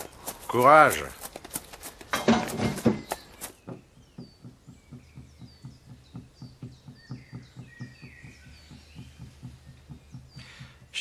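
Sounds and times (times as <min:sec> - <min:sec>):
birds chirping: 0:00.0 - 0:11.0
soft low thumps: 0:02.3 - 0:11.0.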